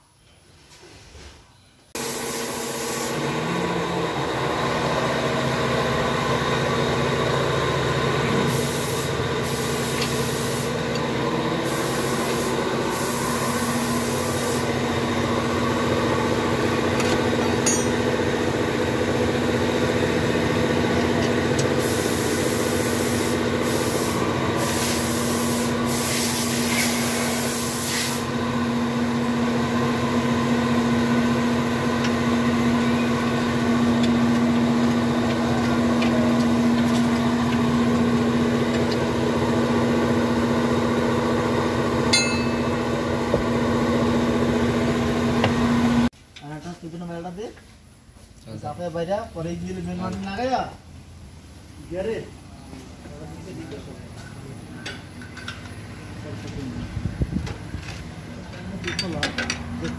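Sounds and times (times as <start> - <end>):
short high hiss: 2.0 - 3.2
car engine idling: 14.7 - 24.6, 28.3 - 46.0.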